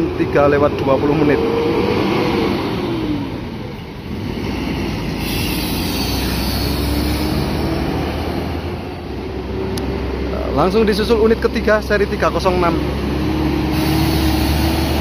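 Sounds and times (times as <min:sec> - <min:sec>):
diesel bus engine rumbling: 0:00.0 - 0:15.0
hiss: 0:05.1 - 0:07.7, 0:13.6 - 0:15.0.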